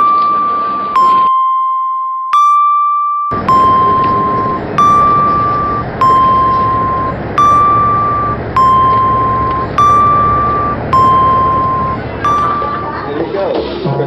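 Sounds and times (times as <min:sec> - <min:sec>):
electronic two-tone warning chime: 0:00.0 - 0:13.2
steady background rumble: 0:03.3 - 0:13.9.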